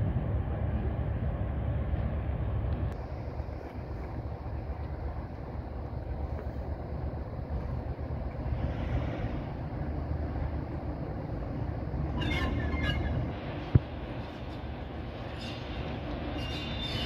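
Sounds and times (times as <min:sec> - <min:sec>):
diesel locomotive engine rumble: 0:00.0 - 0:17.0
high-pitched squeal: 0:12.1 - 0:13.6.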